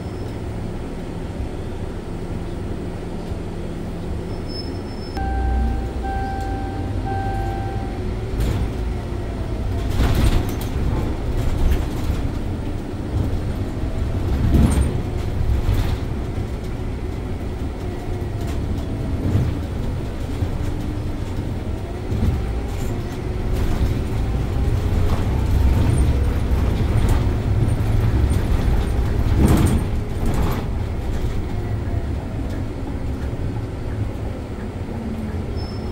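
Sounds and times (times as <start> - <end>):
bus engine and road rumble: 0.0 - 35.9
steady tone: 5.2 - 8.8.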